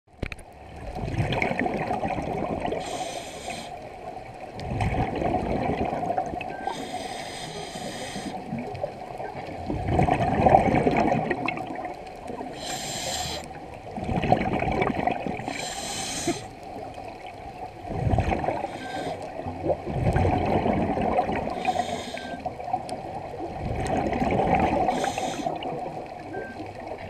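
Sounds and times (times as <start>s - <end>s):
bubbling underwater exhale: 0.8s - 3.7s, 4.5s - 26.9s
hissing inhale through regulator: 2.7s - 3.9s, 6.6s - 8.5s, 12.4s - 13.6s, 15.4s - 16.6s, 18.5s - 19.4s, 21.4s - 22.5s, 24.8s - 25.8s.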